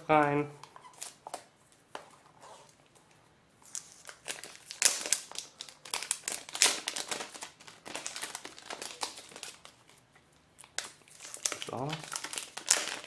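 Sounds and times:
plastic film crinkling: 0:03.6 - 0:10.0, 0:10.6 - 0:13.0.

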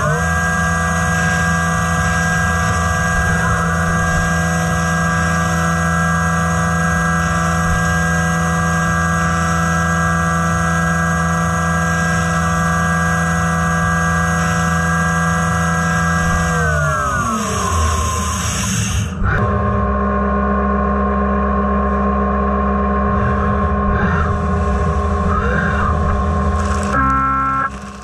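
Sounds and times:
machine spindle whining: 0:00.0 - 0:28.0
hiss of metal cutting and spray: 0:17.3 - 0:19.2.

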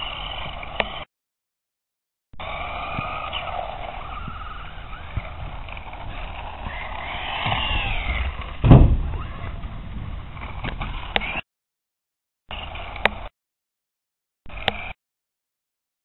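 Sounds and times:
wheels and gears rumbling: 0:00.0 - 0:01.1, 0:02.4 - 0:11.4, 0:12.5 - 0:13.3, 0:14.5 - 0:15.0
electric motor whining: 0:02.4 - 0:09.7
loud thump: 0:08.2 - 0:10.1.

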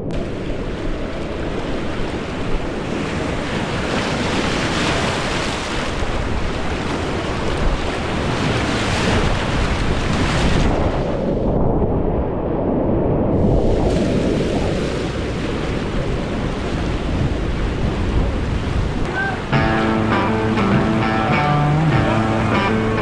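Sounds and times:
wind buffeting microphone: 0:00.0 - 0:19.6
rushing whitewater: 0:19.1 - 0:23.0.

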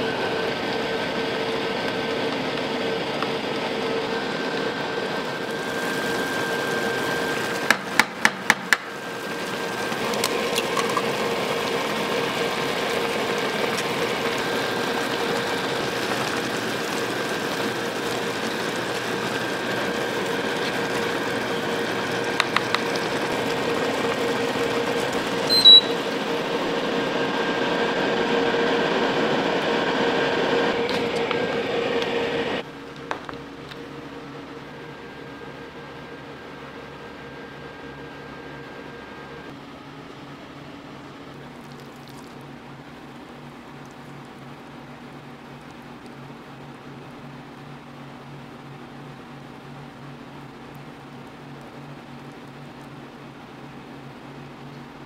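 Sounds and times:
machine hum: 0:00.0 - 0:55.0
short high beep: 0:25.5 - 0:26.0.

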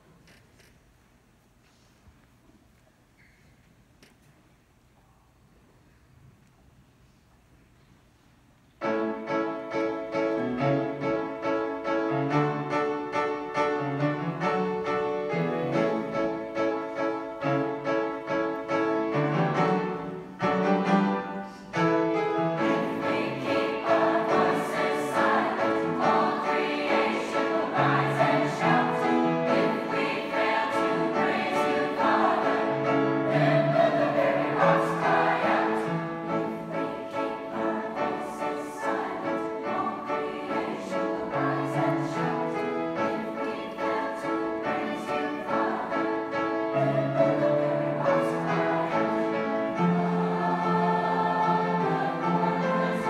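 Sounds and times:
piano accompaniment: 0:08.8 - 0:53.0
youth choir singing: 0:22.5 - 0:53.0.

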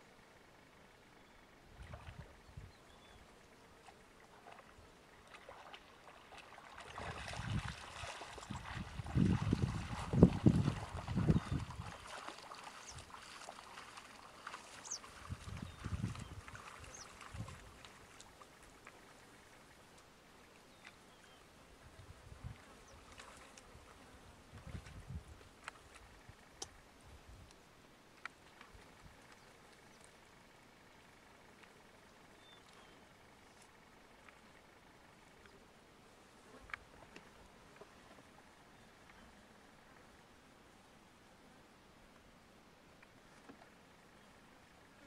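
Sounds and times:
animals splashing through water: 0:03.8 - 0:19.9, 0:22.5 - 0:25.0.

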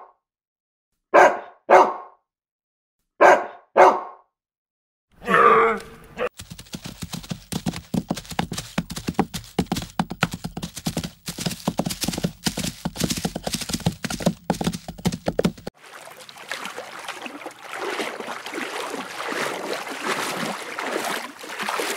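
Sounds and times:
zebras crunching greens: 0:06.3 - 0:21.9.

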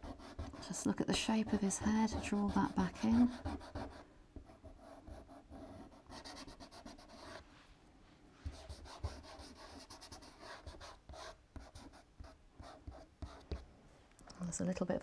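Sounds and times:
pastel rubbing on paper: 0:08.4 - 0:12.0.

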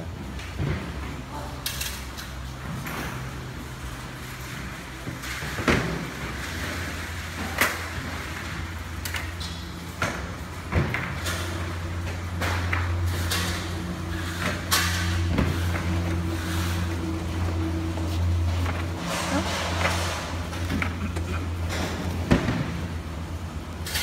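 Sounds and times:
steady low hum: 0:02.4 - 0:24.0
plastic crates knocking and clattering: 0:05.0 - 0:08.2, 0:10.0 - 0:13.1, 0:18.4 - 0:23.0.

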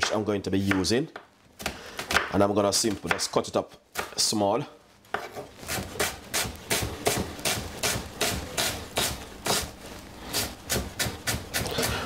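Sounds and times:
knife chopping onion on board: 0:05.1 - 0:09.7, 0:10.3 - 0:12.0.

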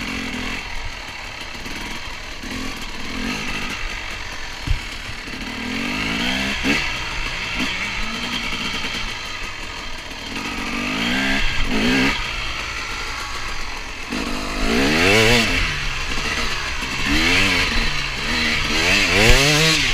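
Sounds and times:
motorcycle engine revving: 0:00.0 - 0:19.9
sharp thump: 0:04.6 - 0:05.2.

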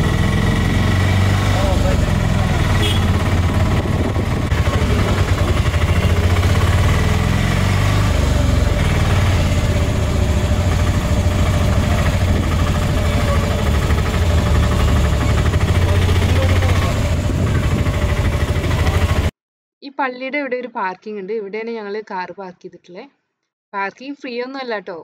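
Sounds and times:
auto-rickshaw engine droning: 0:00.0 - 0:19.4.

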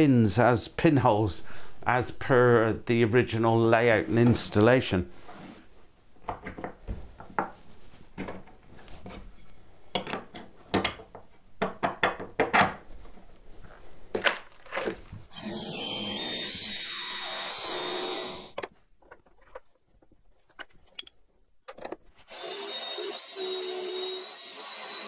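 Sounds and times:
cordless drill boring wood: 0:15.3 - 0:18.6, 0:22.3 - 0:25.0.

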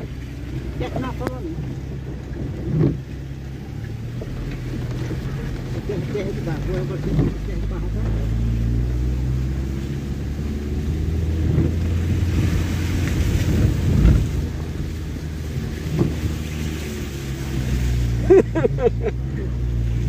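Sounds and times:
car engine running: 0:00.0 - 0:20.0
car thumping through rut: 0:00.0 - 0:20.0.

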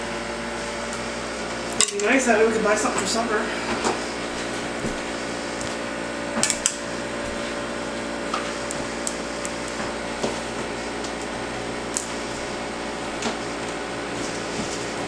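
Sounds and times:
steady hum: 0:00.0 - 0:15.0.

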